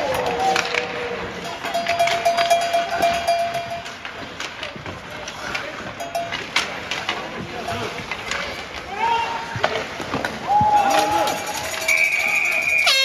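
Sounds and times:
arena noise: 0.0 - 13.0
hockey sticks and puck clacking: 0.0 - 13.0
held tone: 11.7 - 13.0.

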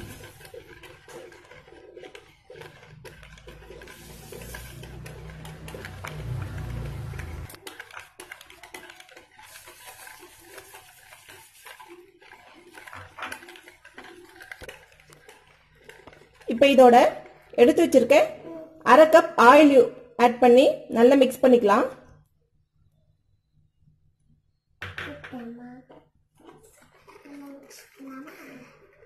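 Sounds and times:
whisk clicking against plastic bowl: 0.0 - 17.6.

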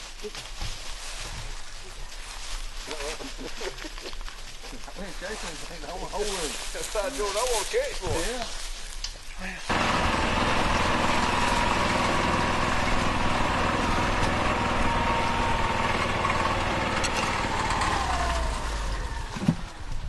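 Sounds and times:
utility vehicle engine running: 9.7 - 20.0.

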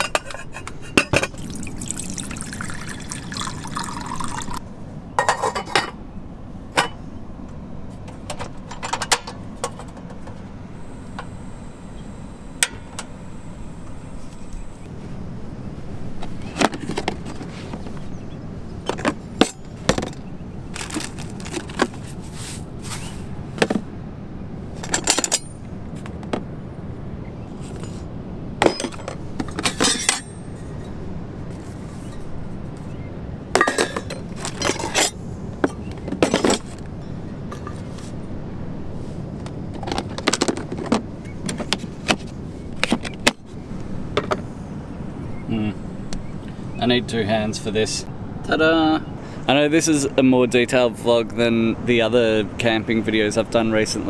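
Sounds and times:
bottles and utensils chinking: 0.0 - 4.6, 33.6 - 35.1
low background noise: 0.0 - 54.0.

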